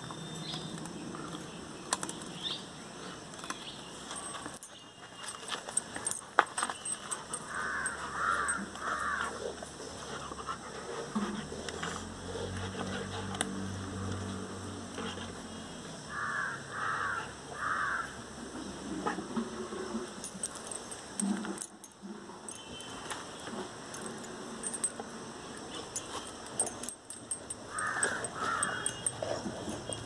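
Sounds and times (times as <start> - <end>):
metal chain leash jingling: 3.3 - 15.6, 20.2 - 30.0
puppy chewing wooden stick: 25.6 - 30.0.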